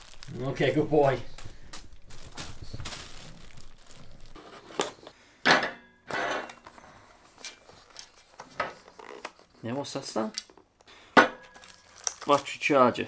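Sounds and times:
plastic wrapping crinkling: 0.0 - 5.0, 11.4 - 13.0
cardboard box rustling: 0.9 - 5.0.

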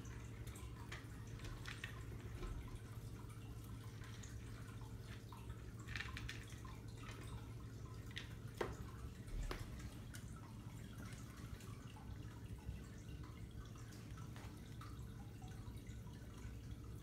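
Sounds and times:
faint steady hum: 0.0 - 17.0
hamsters clicking in wire cage: 5.8 - 7.4.

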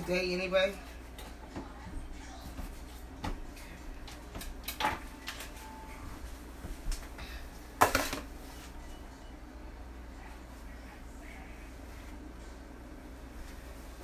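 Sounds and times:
utensils and dishes clinking: 7.8 - 8.3.

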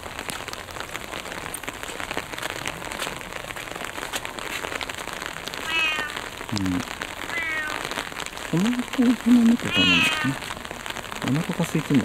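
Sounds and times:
even hiss: 5.6 - 10.6.

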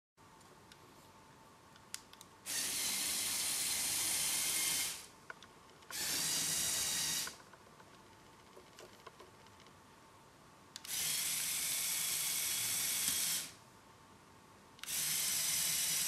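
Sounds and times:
toy tank electric motors running: 2.5 - 5.1, 5.9 - 7.4, 10.9 - 13.6, 14.8 - 16.0.

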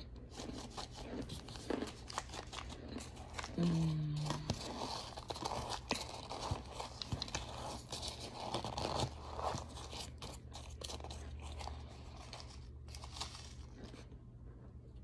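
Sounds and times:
fork crunching cornstarch: 0.0 - 3.6.

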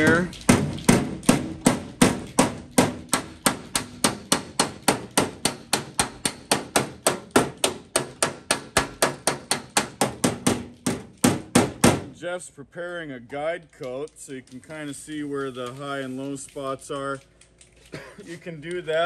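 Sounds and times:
hammer tapping steel panel: 0.0 - 12.1.

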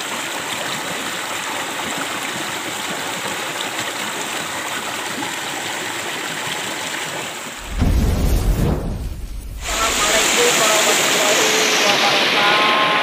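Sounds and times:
river water rushing over rocks: 9.5 - 13.0.

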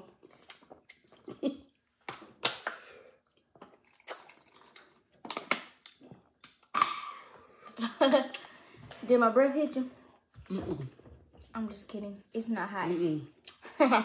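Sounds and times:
mouth smacks and chewing: 0.0 - 6.8.

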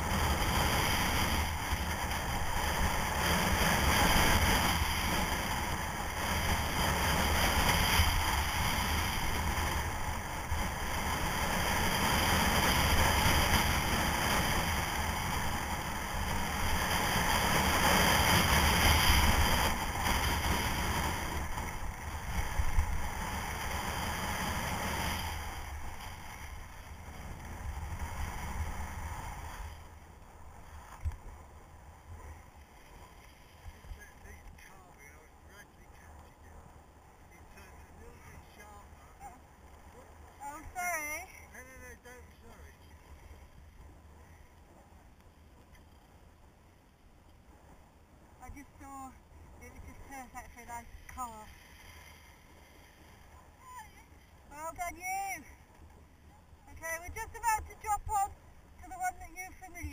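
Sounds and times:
skis scraping on snow: 0.0 - 39.4, 48.5 - 59.9.

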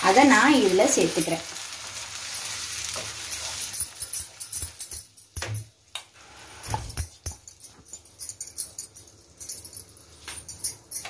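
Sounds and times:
light sizzle: 0.0 - 11.0.

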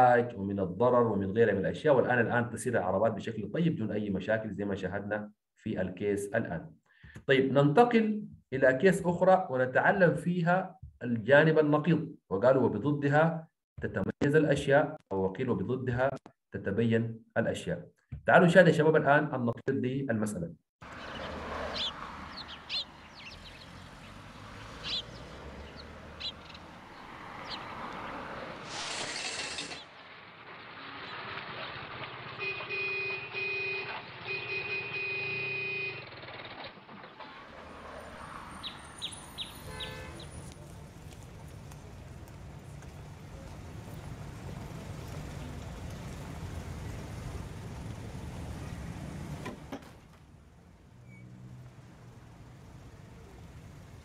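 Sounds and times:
birds chirping: 20.8 - 28.2, 38.2 - 40.6.

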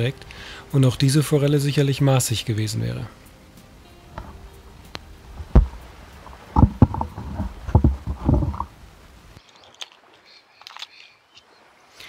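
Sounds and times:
water sloshing against rocks: 4.1 - 12.0
microphone handling thumps: 5.3 - 8.8.

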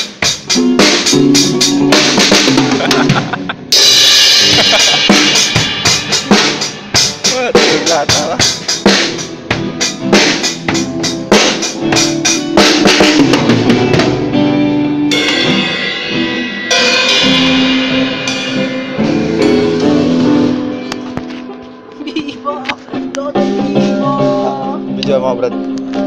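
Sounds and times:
drum and bass-drum hits: 0.0 - 14.4, 15.1 - 20.7
cymbal crashes ringing: 3.7 - 7.3, 15.1 - 20.6.

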